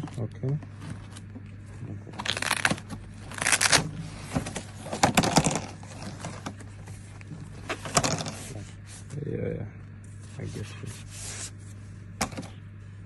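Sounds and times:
packaging rustling and scraping: 2.2 - 9.1.

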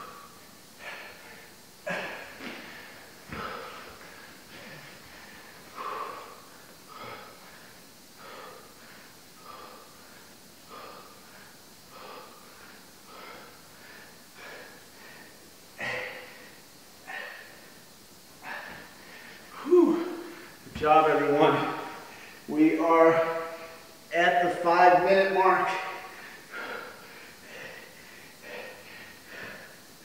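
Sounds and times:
man exhaling forcefully: 0.0 - 7.6, 18.4 - 20.6.

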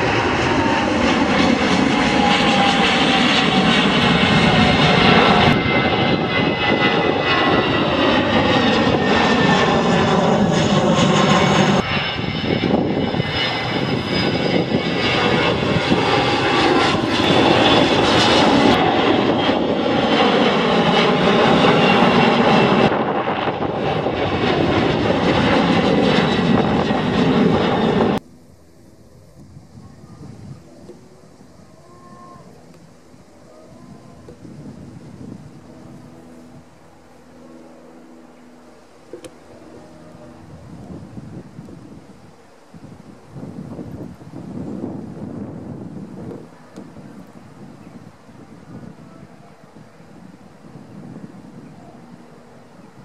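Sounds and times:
whining engine tones: 0.0 - 28.3
jet airliners passing overhead: 0.0 - 53.0.

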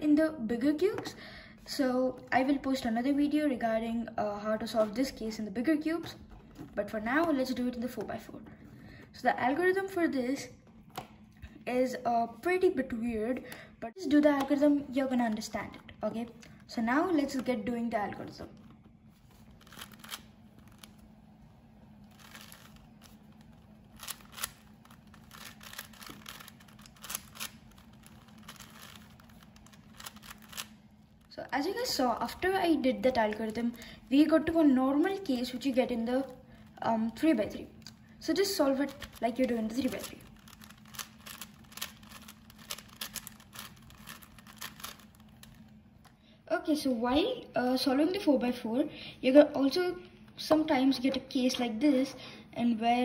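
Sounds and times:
speed cube clicking and rattling: 19.5 - 21.1, 21.8 - 45.8.

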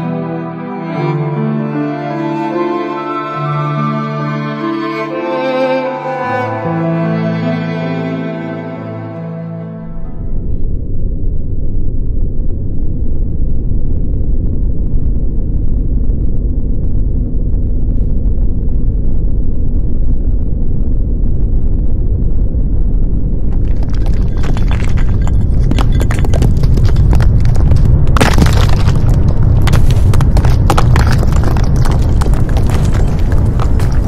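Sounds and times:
deep earthquake rumbling: 9.8 - 34.0.

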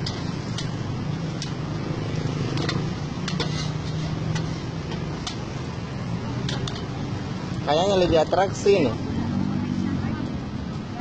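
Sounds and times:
spatula clicking on metal griddle: 0.0 - 1.6, 2.5 - 5.4.

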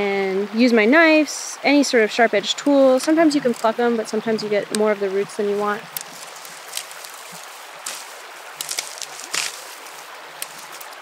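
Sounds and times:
steady hiss: 0.0 - 11.0
dry stalks rustling and crackling: 2.6 - 11.0
stalks snapping: 3.4 - 3.8, 5.9 - 11.0.

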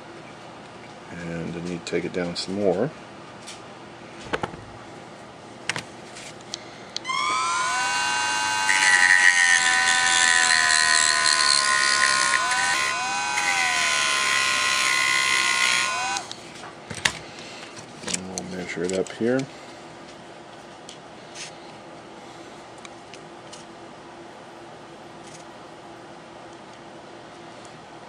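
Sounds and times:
rotary tool grinding plastic: 7.1 - 16.3.

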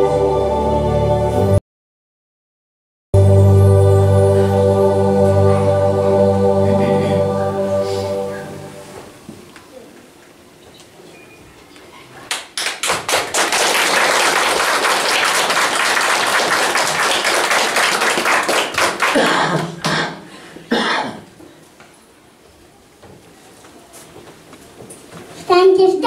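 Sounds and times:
audience applauding: 12.3 - 20.0.

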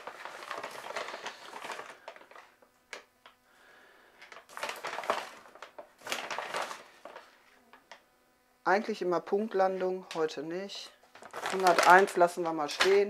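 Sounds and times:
powder scraping and rustling: 0.0 - 2.5, 11.2 - 13.0.

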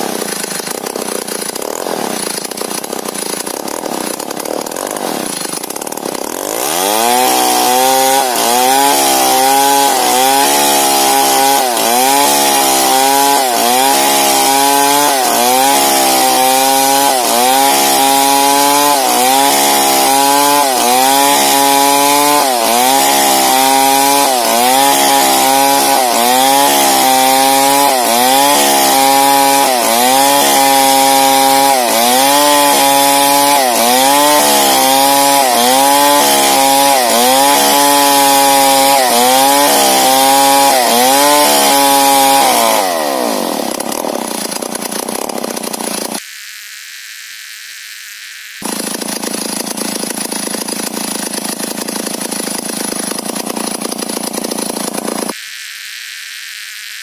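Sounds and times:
chainsaw cutting log: 0.0 - 57.0.

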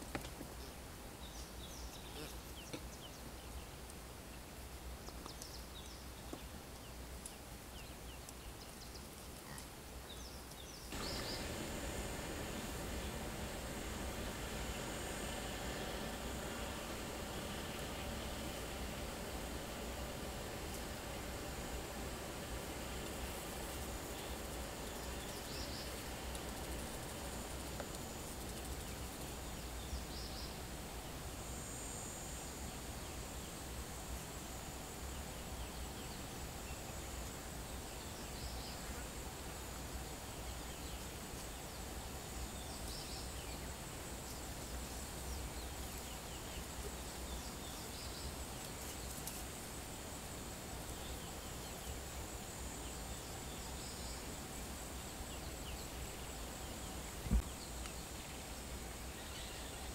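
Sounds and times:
high insect drone: 10.8 - 59.9
low steady rumble: 10.9 - 34.8.

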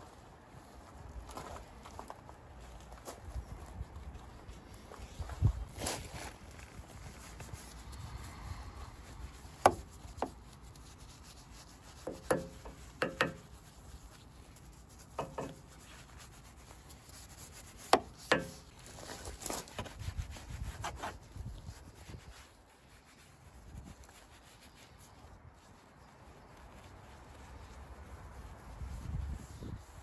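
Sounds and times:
brush scrubbing foam: 6.8 - 30.0
brush knocking on grille: 9.5 - 10.4, 11.9 - 13.8, 14.9 - 16.1, 17.8 - 18.8.

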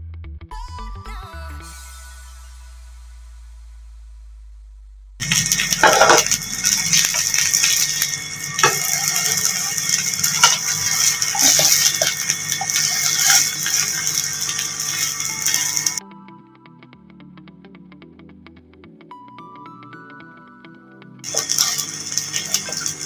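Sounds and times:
pancakes sizzling in pan: 5.2 - 16.0, 21.3 - 23.0
spatula scraping and knocking pan: 5.7 - 13.8.

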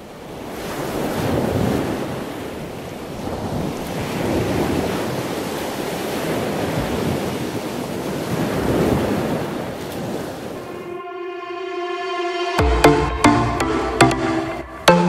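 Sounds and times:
wind: 0.0 - 11.1
sea surf washing in: 3.2 - 15.0
music: 10.7 - 15.0.

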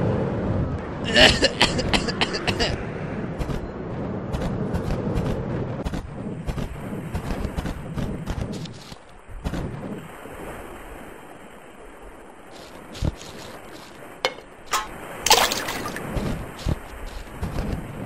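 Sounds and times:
surf washing on shore: 8.5 - 18.0.

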